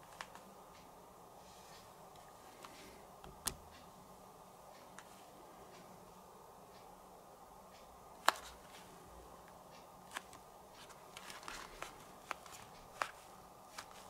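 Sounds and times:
headphones clicking: 0:08.2 - 0:08.6, 0:10.1 - 0:14.0
soft rustle: 0:09.7 - 0:14.0.

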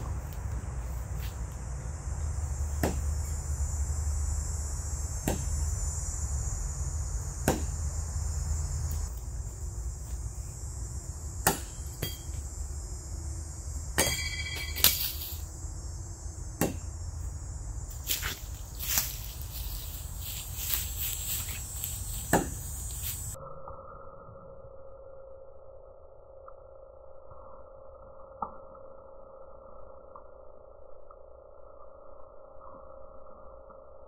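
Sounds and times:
footsteps on leafy path: 0:00.0 - 0:01.6, 0:17.9 - 0:23.4
insects buzzing: 0:00.0 - 0:23.4.

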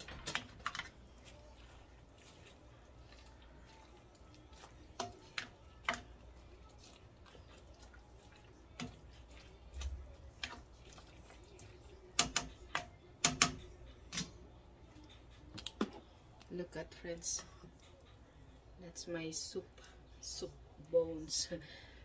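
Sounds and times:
utensil knocking on metal pot: 0:05.0 - 0:06.1, 0:12.2 - 0:13.7.

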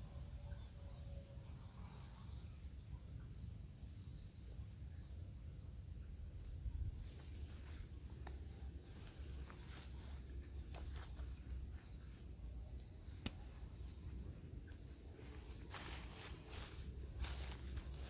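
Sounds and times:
insects trilling: 0:00.0 - 0:18.0
footsteps through dry stubble: 0:06.9 - 0:18.0.

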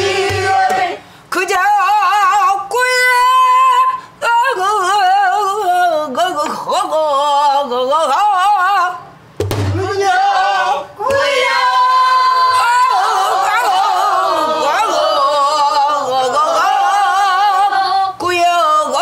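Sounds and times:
barrel drum strokes: 0:00.0 - 0:00.9, 0:09.4 - 0:10.0
woman singing with vibrato: 0:00.0 - 0:09.2, 0:09.8 - 0:19.0.

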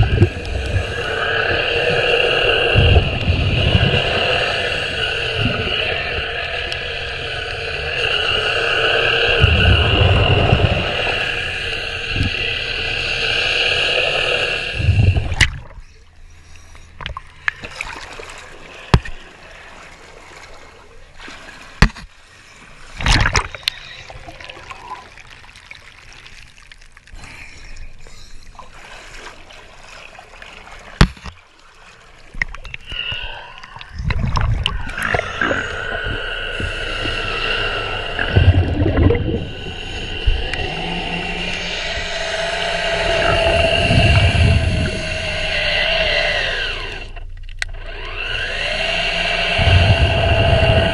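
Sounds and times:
underwater brush motor whine: 0:00.0 - 0:15.4, 0:34.0 - 0:50.9
underwater water noise: 0:00.0 - 0:50.9.

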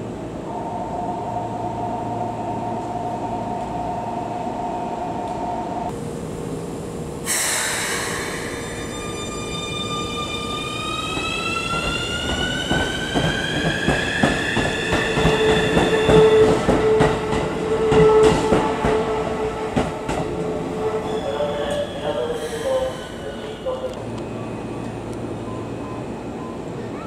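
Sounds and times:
steady high tone: 0:00.4 - 0:05.9.

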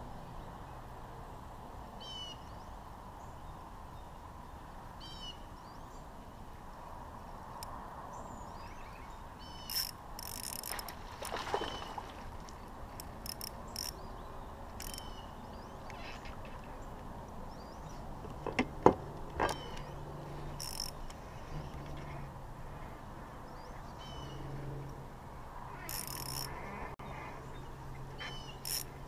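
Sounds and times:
birds chirping: 0:08.1 - 0:24.6, 0:25.7 - 0:29.0.

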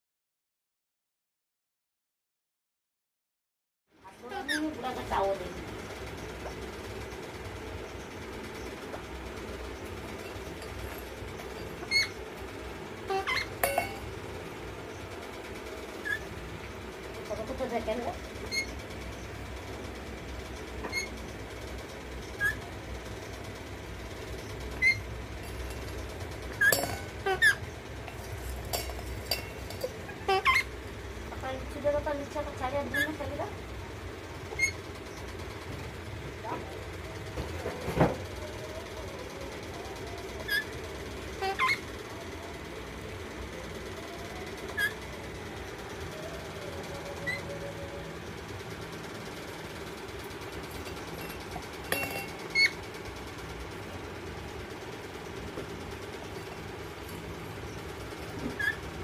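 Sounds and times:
steady low hum: 0:04.0 - 0:59.0
parakeet squeaks: 0:04.4 - 0:04.8, 0:09.7 - 0:12.2, 0:13.1 - 0:14.1, 0:16.0 - 0:16.3, 0:18.4 - 0:18.8, 0:20.8 - 0:21.2, 0:22.2 - 0:22.7, 0:24.3 - 0:30.7, 0:32.9 - 0:33.2, 0:34.5 - 0:34.8, 0:40.4 - 0:40.8, 0:41.4 - 0:41.9, 0:44.7 - 0:45.0, 0:47.0 - 0:47.8, 0:52.5 - 0:52.8, 0:57.1 - 0:58.9
metal tumbler knocking on concrete: 0:13.2 - 0:14.4, 0:24.2 - 0:30.6, 0:50.1 - 0:52.8.

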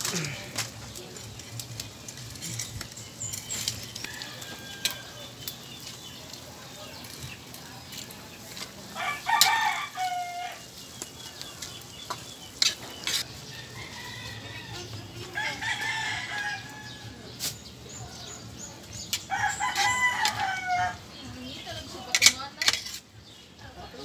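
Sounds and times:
rooster crowing: 0:04.0 - 0:05.3, 0:09.0 - 0:10.7, 0:19.3 - 0:21.0.

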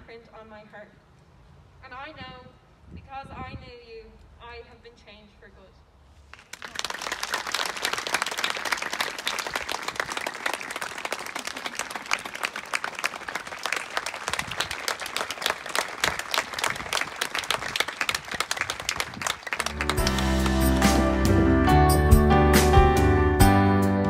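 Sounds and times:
close hands clapping: 0:06.3 - 0:21.0
crowd applauding: 0:06.3 - 0:21.2.

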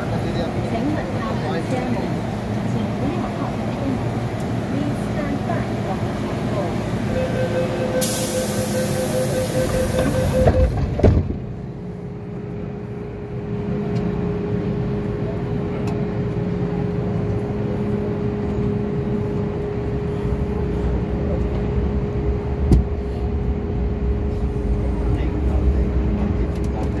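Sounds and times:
concourse noise: 0:00.0 - 0:27.0
steady hum: 0:06.5 - 0:10.7
short beeps: 0:07.1 - 0:10.8.

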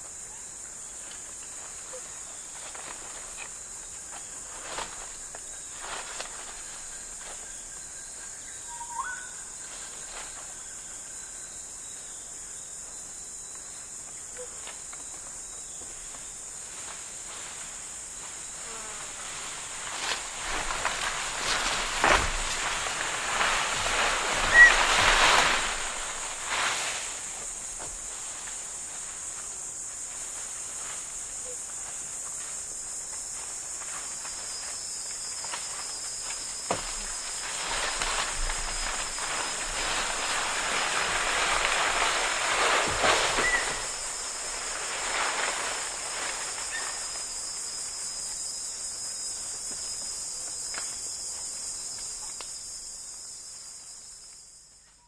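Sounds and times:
high cicada drone: 0:00.0 - 0:55.0
bird chirping: 0:08.5 - 0:09.4
branch dragged through undergrowth: 0:19.0 - 0:29.3, 0:35.4 - 0:47.6.

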